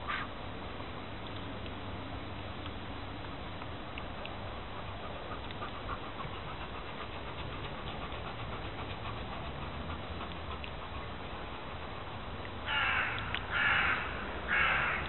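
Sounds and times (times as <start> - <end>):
dog panting: 4.0 - 12.7.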